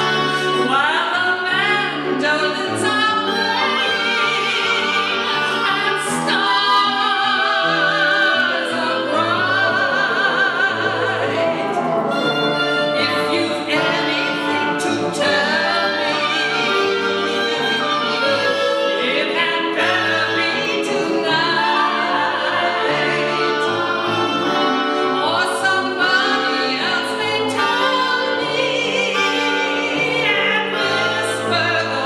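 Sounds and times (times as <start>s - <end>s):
woman singing with vibrato: 0.0s - 32.0s
woodwind trio: 0.0s - 32.0s
bassoon low notes: 6.8s - 32.0s.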